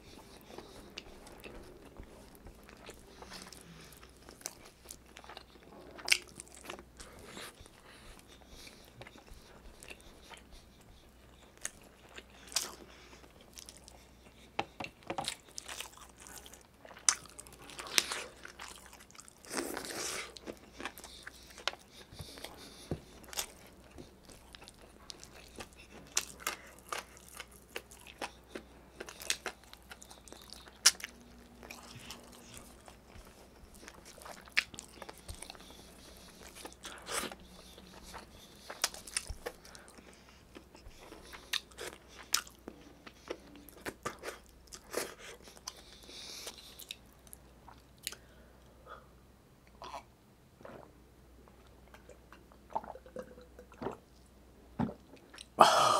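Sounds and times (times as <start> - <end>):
chewing: 0.0 - 48.3
food crunching: 14.8 - 48.3.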